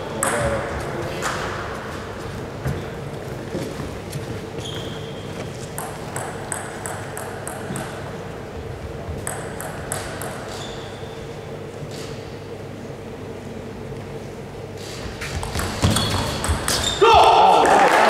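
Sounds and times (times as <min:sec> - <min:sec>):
steady low hum: 0:00.0 - 0:17.7
table tennis ball pinging: 0:05.8 - 0:08.1, 0:09.2 - 0:10.9, 0:15.4 - 0:16.8.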